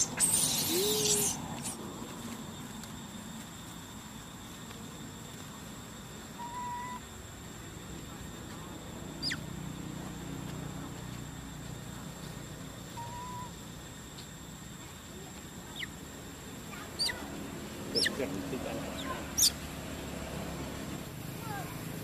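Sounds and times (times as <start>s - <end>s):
high squeaks dropping in pitch: 0.0s - 1.8s.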